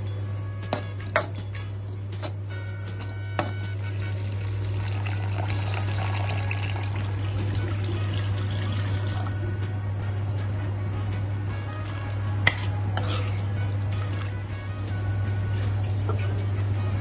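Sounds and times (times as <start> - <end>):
water pouring into a pan: 4.4 - 9.4.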